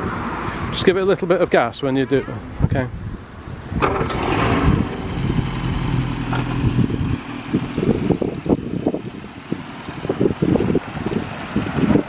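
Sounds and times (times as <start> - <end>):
wind buffeting microphone: 2.4 - 12.0
car engine running: 3.8 - 12.0.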